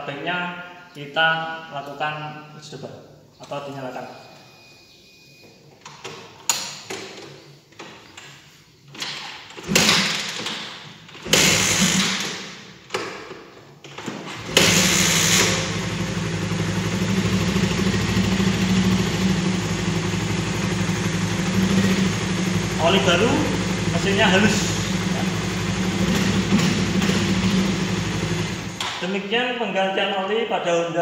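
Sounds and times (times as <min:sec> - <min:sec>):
motorcycle engine starting and idling: 0:09.4 - 0:12.8, 0:14.1 - 0:29.1.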